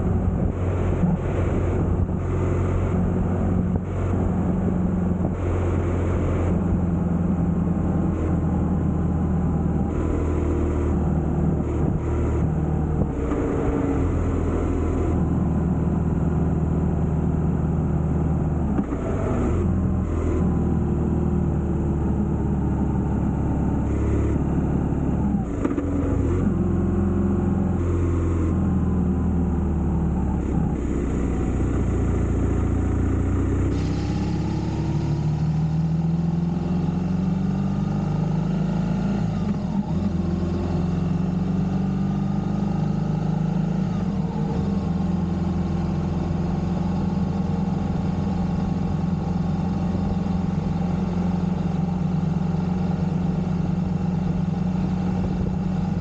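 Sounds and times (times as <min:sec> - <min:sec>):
motorcycle engine running: 0:19.6 - 0:37.4
rushing noise: 0:33.6 - 0:36.5.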